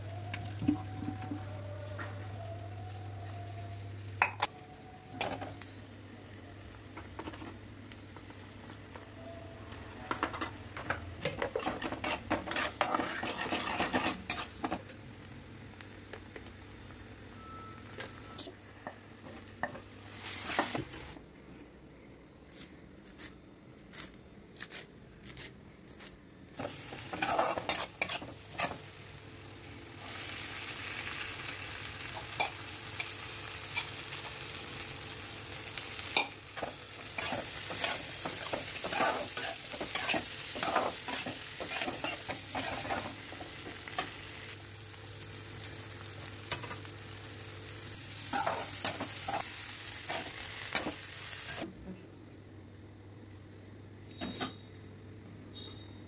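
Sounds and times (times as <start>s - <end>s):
metal spatula scraping pan: 11.2s - 14.8s, 26.6s - 28.8s, 36.2s - 43.1s
vegetables sizzling in oil: 11.2s - 17.9s, 19.6s - 21.2s, 26.6s - 51.7s.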